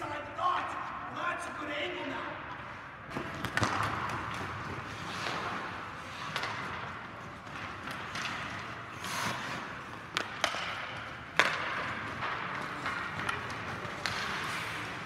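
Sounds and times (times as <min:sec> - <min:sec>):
hockey sticks hitting puck: 0:03.1 - 0:15.0
skate blades scraping ice: 0:03.1 - 0:15.0.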